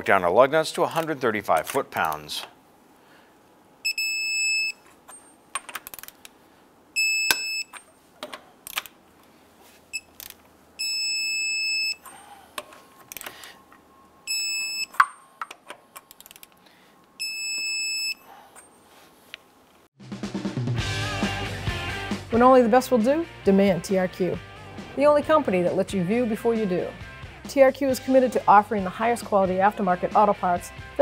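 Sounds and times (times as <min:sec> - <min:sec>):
torque wrench beeping: 0:03.9 - 0:05.4, 0:07.0 - 0:07.8, 0:09.9 - 0:12.2, 0:14.2 - 0:15.2
metallic clicks of socket and wrench: 0:05.6 - 0:06.3, 0:15.0 - 0:16.6.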